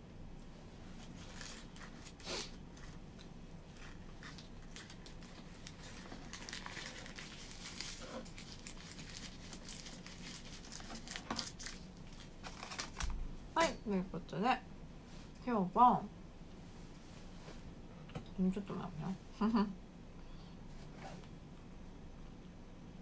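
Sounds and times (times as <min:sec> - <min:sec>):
plastic wrap crinkling: 0:00.9 - 0:13.2.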